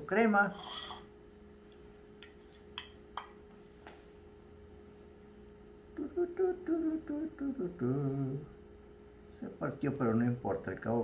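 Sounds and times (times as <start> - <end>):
faint hum: 0.0 - 11.0
man humming: 5.9 - 8.6.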